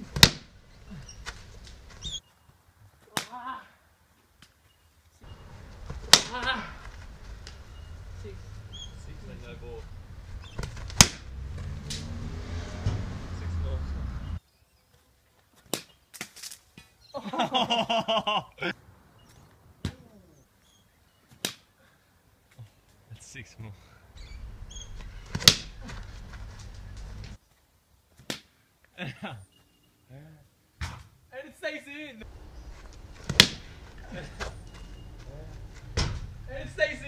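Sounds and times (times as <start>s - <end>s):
cricket bat hitting ball: 0.2s - 0.5s, 5.8s - 6.6s, 10.5s - 11.3s, 25.3s - 25.8s, 33.2s - 34.0s
person shouting: 3.2s - 3.8s.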